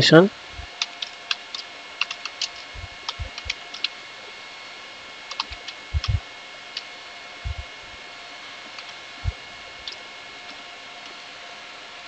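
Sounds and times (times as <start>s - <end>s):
keyboard keys clicking: 0.6s - 3.9s, 5.3s - 6.2s.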